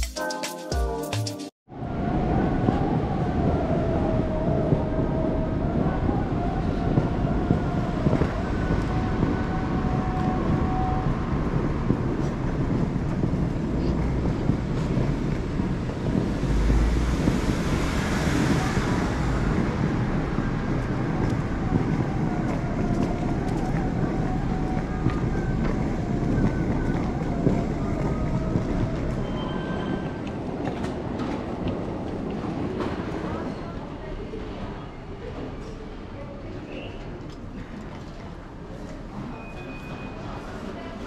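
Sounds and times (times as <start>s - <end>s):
traffic rumble and hiss: 2.1s - 30.5s.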